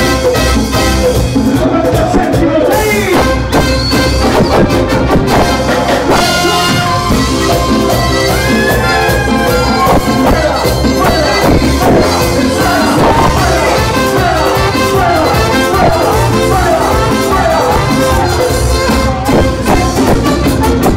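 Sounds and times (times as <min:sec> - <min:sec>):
brass section: 0:00.0 - 0:01.6, 0:03.0 - 0:20.9
keyboard: 0:00.0 - 0:20.9
latin dance band playing: 0:00.0 - 0:20.9
men singing: 0:08.3 - 0:20.2.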